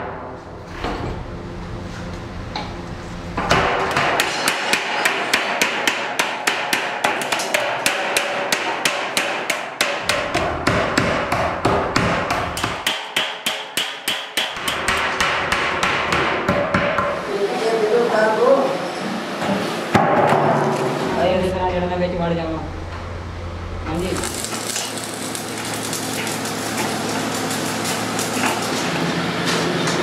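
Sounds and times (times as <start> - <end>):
hammer striking sheet metal: 3.4 - 17.2, 19.9 - 21.3.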